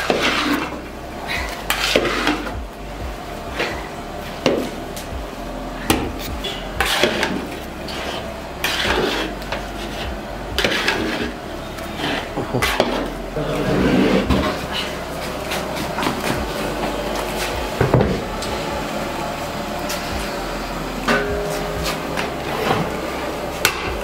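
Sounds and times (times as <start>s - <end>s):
metal ladle scraping metal pot: 0.0s - 0.8s, 1.6s - 2.6s, 5.9s - 10.0s, 10.6s - 16.2s.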